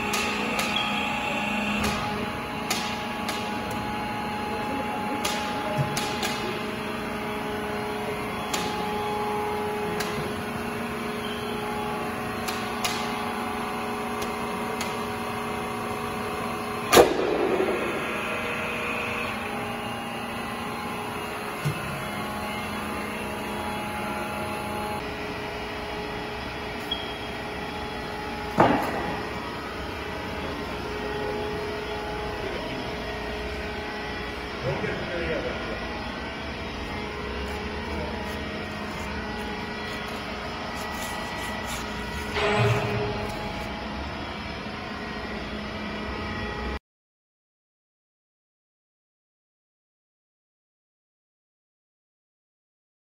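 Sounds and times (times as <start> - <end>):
hydraulic press humming: 0.0 - 46.8.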